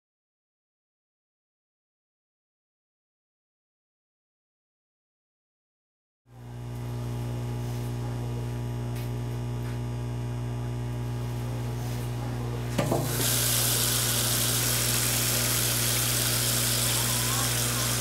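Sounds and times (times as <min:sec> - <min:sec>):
tap opening clunk: 0:12.8 - 0:13.2
water running into steel sink: 0:12.8 - 0:18.0.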